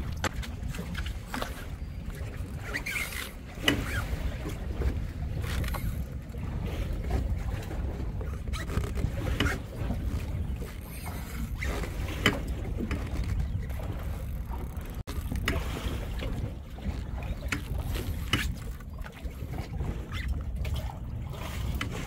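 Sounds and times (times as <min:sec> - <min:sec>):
boat noise: 0:00.0 - 0:22.0
wind rumble: 0:00.0 - 0:22.0.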